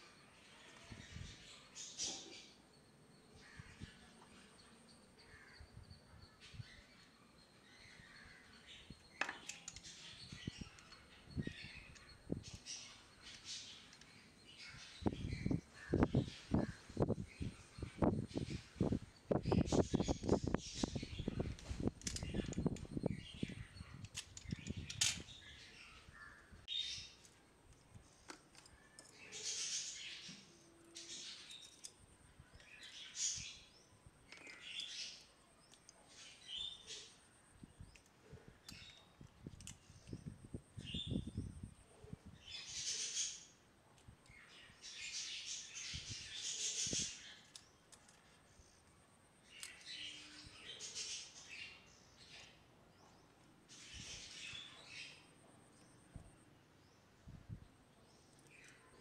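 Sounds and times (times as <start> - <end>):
plastic parts clicking and tapping: 9.2 - 9.9, 21.5 - 22.9, 24.0 - 25.3, 27.2 - 29.2, 31.5 - 32.0, 34.2 - 34.9, 37.8 - 40.3, 47.4 - 48.4.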